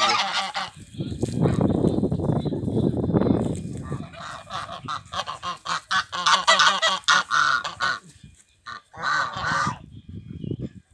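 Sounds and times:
geese honking: 0.0s - 1.7s, 3.6s - 9.9s.

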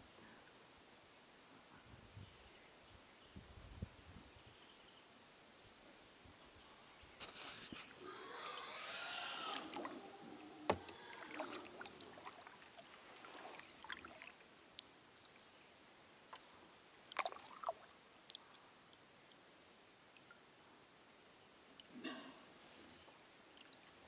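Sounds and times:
paddle water splashing: 9.4s - 14.8s, 17.0s - 17.9s.

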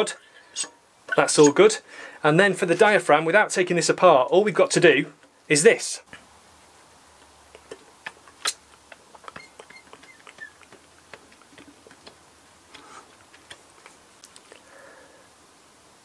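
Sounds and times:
lip smacks: 7.2s - 14.7s.

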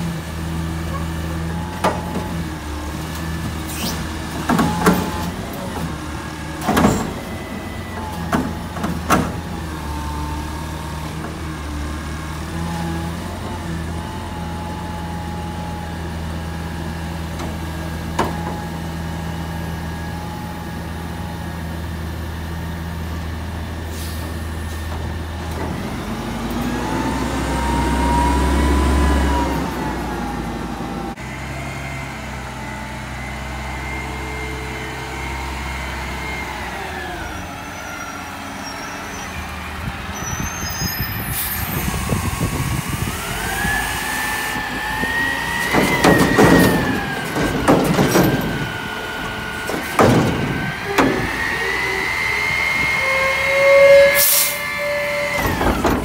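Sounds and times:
garbage truck diesel engine: 0.0s - 56.0s
engine whine: 24.2s - 56.0s.

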